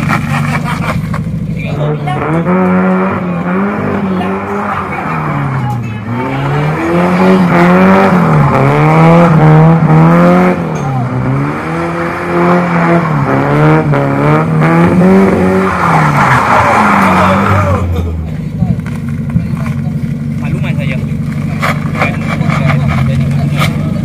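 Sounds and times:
car engine revving: 0.0 - 24.0
tyres squealing: 15.4 - 18.2.

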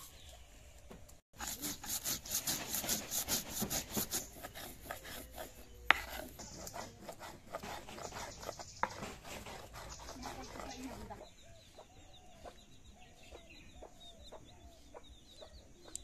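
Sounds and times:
stone roller grinding spices: 1.4 - 11.3.

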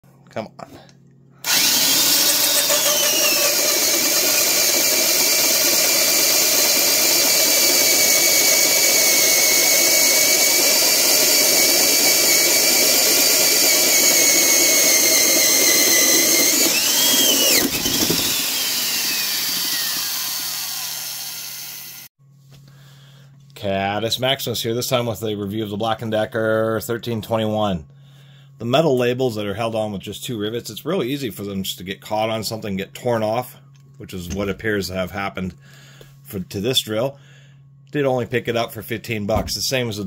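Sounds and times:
drill motor whining: 1.4 - 22.1.

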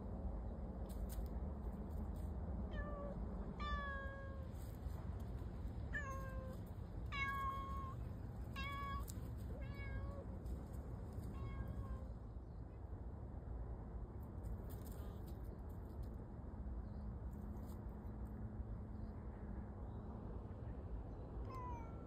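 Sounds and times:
low background rumble: 0.0 - 22.0
cat meowing: 11.3 - 12.1, 21.4 - 22.0.

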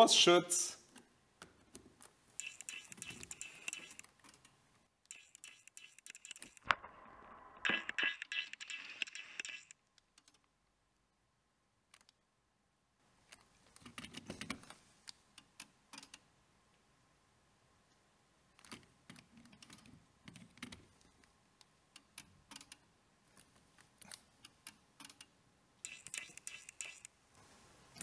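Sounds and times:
faint clicking and tapping: 18.6 - 27.2.

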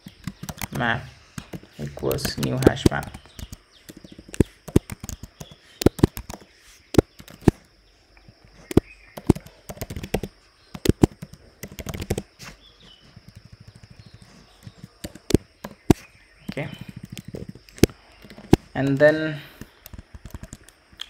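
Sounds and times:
keyboard key clicks: 1.4 - 6.4, 8.7 - 12.2.

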